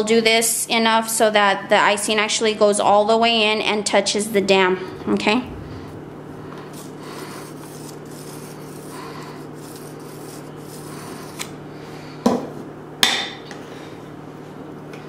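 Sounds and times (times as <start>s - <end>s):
steady low hum: 1.7s - 13.0s
spatula scraping icing on cake: 6.8s - 11.5s.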